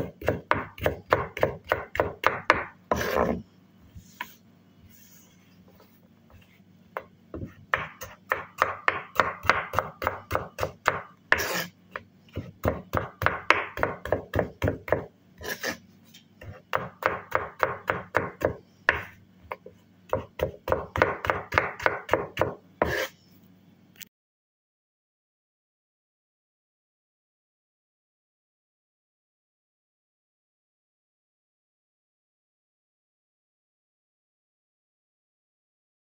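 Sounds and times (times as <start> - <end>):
knife chopping on cutting board: 0.0 - 3.4, 7.0 - 15.8, 16.4 - 23.1
harsh knife strokes: 11.3 - 11.7, 15.4 - 15.8, 22.8 - 23.2.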